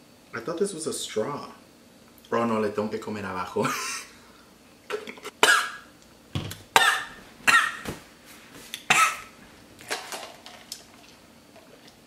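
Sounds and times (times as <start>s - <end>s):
man coughing: 5.4s - 5.8s, 6.8s - 7.8s, 8.9s - 9.3s.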